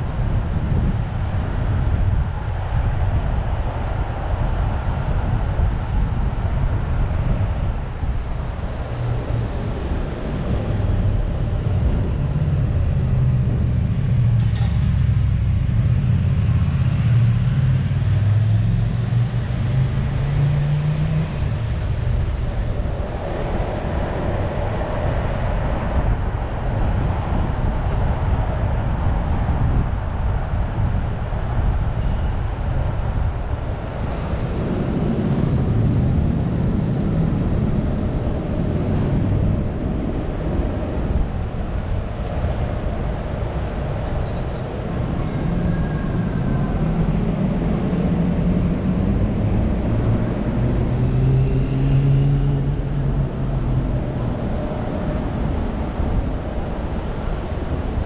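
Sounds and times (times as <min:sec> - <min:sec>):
car engine accelerating: 0:13.8 - 0:22.6, 0:47.0 - 0:55.9.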